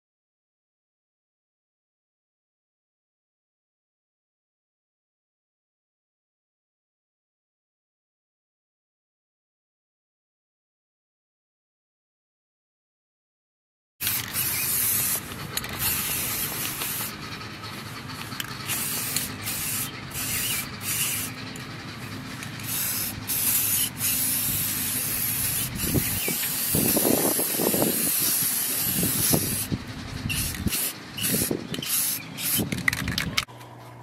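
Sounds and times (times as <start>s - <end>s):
spray paint can hissing: 14.0s - 21.4s, 22.4s - 33.4s.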